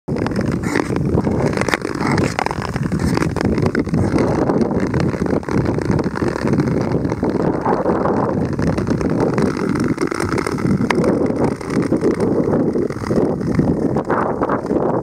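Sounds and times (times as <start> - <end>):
wind buffeting microphone: 0.1 - 15.0.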